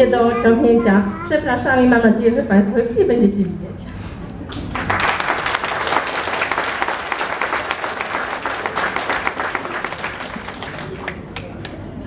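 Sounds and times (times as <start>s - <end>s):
audience applauding: 4.5s - 11.9s.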